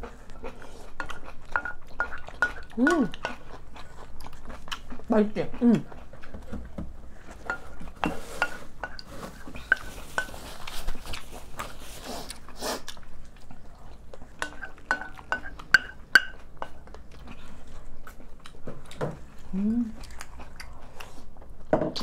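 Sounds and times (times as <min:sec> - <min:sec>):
utensils clinking on ceramic bowls: 0:01.0 - 0:03.3, 0:07.4 - 0:10.6, 0:14.4 - 0:16.8.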